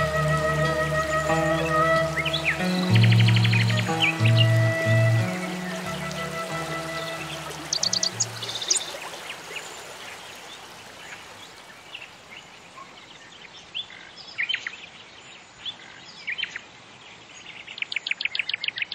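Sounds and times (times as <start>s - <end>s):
birds chirping: 0.0s - 13.3s
faint steady hiss: 0.0s - 15.9s.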